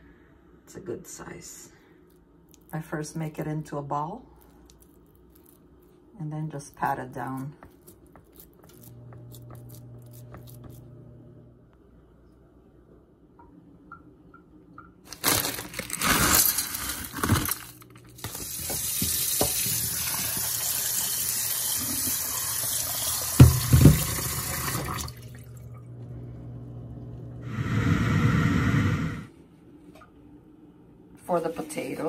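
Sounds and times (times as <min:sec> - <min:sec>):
bowl knocking: 0:23.4 - 0:24.3.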